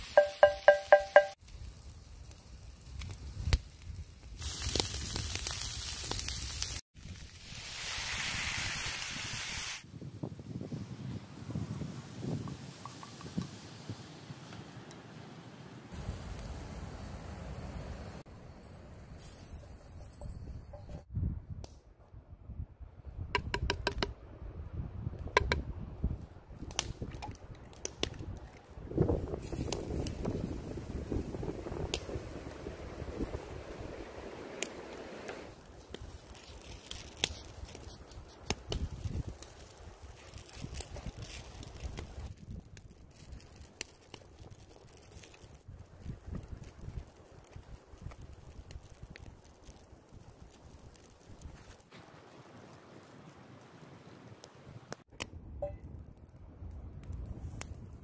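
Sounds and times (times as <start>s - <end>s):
fire crackling: 0.0s - 20.2s, 23.0s - 58.0s
quick ringing taps: 0.2s - 1.4s
meat and cabbage sizzling in pan: 4.1s - 9.8s.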